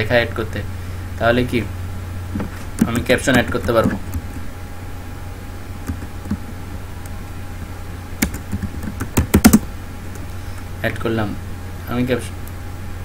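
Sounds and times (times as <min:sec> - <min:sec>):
low electrical hum: 0:00.0 - 0:13.0
keyboard keystrokes: 0:08.2 - 0:10.2.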